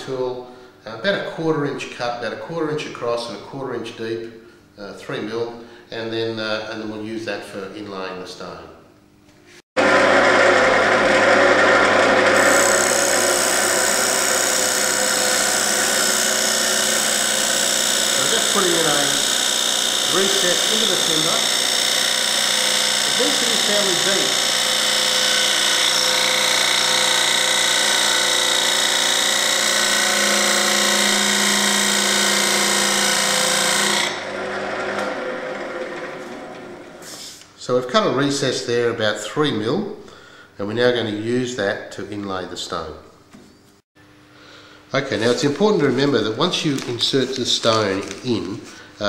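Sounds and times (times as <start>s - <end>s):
lathe humming: 9.8s - 37.4s
tool scraping spinning wood: 9.8s - 37.5s.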